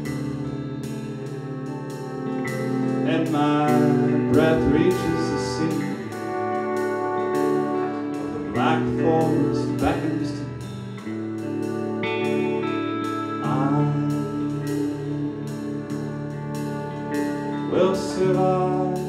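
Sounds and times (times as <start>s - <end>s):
drum kit with cymbal beat: 0.0s - 19.0s
electric guitar: 0.0s - 19.0s
sustained chords: 0.0s - 19.0s
man singing: 2.6s - 10.9s, 12.2s - 19.0s.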